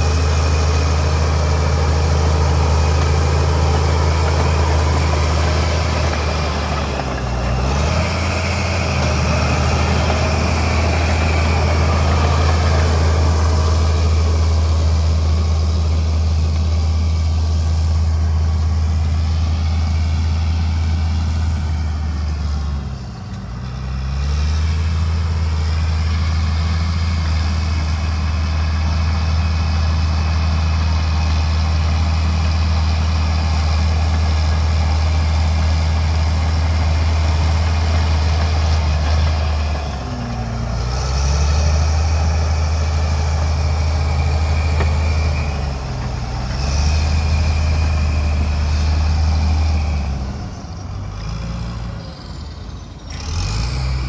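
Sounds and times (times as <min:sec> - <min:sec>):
bulldozer diesel engine droning: 0:00.0 - 0:54.0.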